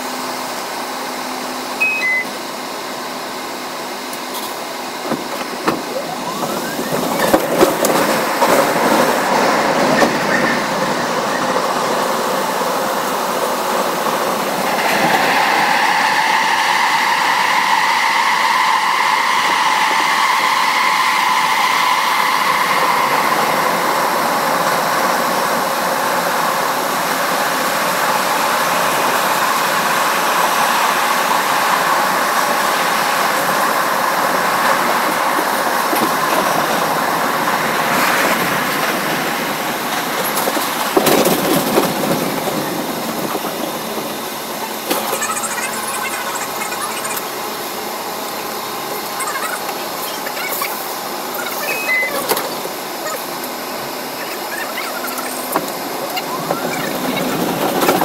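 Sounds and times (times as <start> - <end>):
short beeps: 1.8 - 2.4, 51.6 - 52.3
train wheels rumbling on rails: 2.8 - 58.0
high-pitched squeal: 5.5 - 12.3, 12.9 - 27.2, 44.5 - 58.0.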